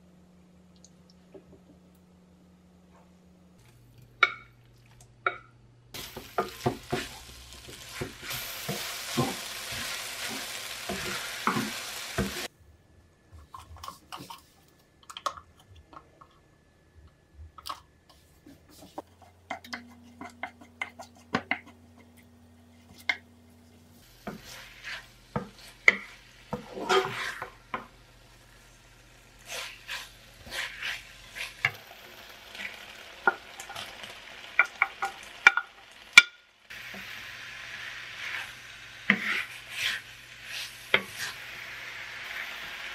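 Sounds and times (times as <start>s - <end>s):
meat sizzling in a pan: 6.0s - 12.5s, 24.0s - 42.9s
wooden spatula scraping a pan: 6.0s - 12.5s, 18.5s - 23.2s, 24.0s - 27.9s, 29.4s - 31.8s, 38.2s - 41.5s.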